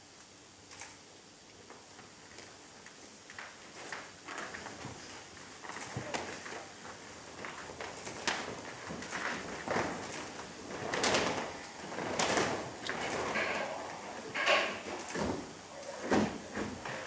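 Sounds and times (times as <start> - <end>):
cloth flag swishing and flapping: 3.2 - 17.0.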